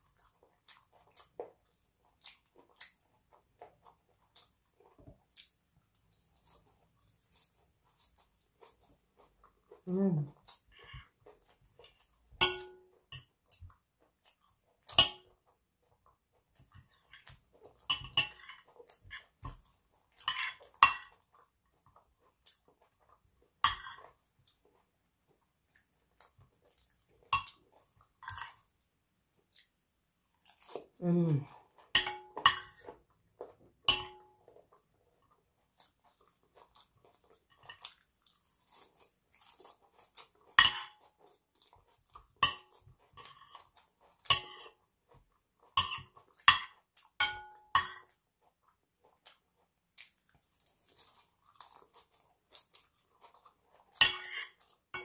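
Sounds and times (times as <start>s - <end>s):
chewing: 0.0s - 47.2s, 48.0s - 55.0s
cutlery scraping a ceramic plate: 17.1s - 19.6s, 20.2s - 21.2s, 23.6s - 24.1s, 31.9s - 32.9s, 40.6s - 41.0s, 44.3s - 44.8s, 45.8s - 48.1s, 54.0s - 55.0s.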